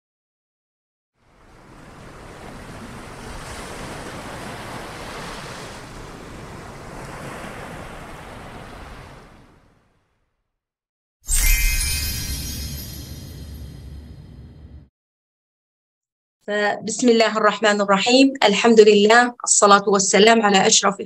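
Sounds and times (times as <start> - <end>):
ocean waves rushing: 1.2 - 9.7.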